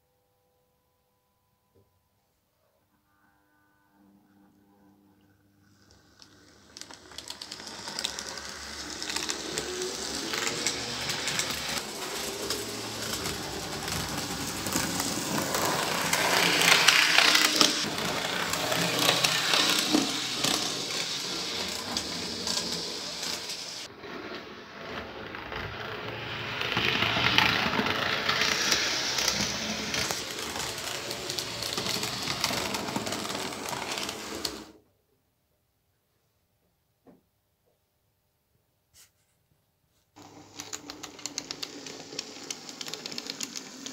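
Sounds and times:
wheels rattling over rails: 6.6 - 23.9, 25.0 - 34.7, 40.2 - 43.9.

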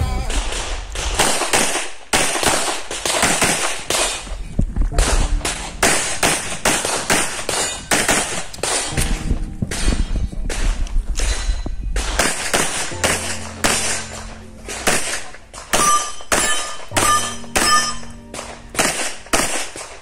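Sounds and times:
rapid pistol shots: 0.4 - 4.4, 5.0 - 18.0, 18.8 - 20.0.

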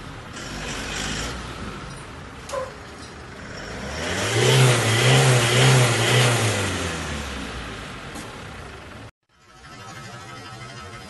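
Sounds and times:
pickup engine revving: 0.3 - 1.8, 3.4 - 9.0.

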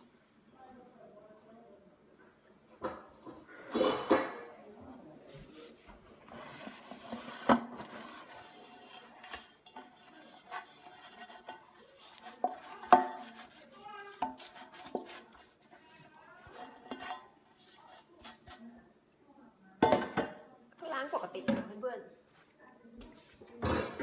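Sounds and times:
metal pan clanking: 6.3 - 18.6.

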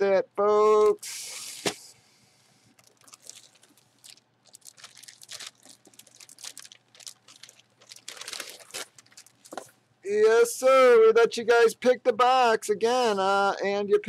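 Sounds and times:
short hiss: 1.0 - 2.0
plastic bag crinkling: 2.8 - 9.8.

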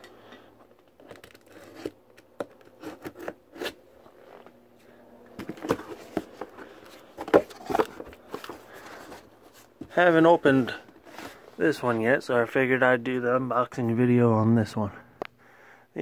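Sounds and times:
cardboard flaps scraping and rustling: 5.4 - 12.1.

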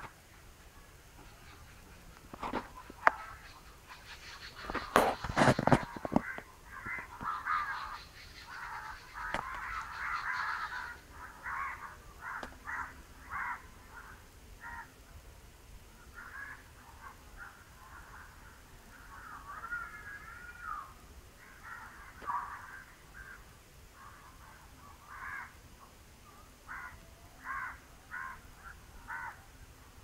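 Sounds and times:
short repeated bird calls: 0.8 - 14.9.

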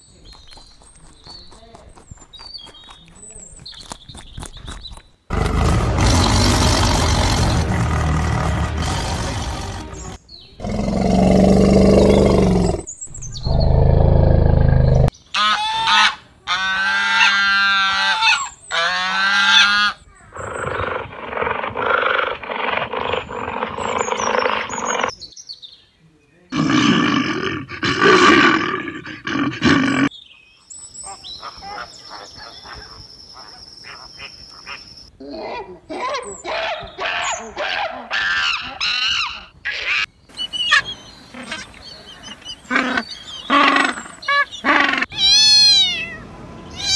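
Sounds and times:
tiger roaring and growling: 5.3 - 15.1, 26.5 - 30.1.

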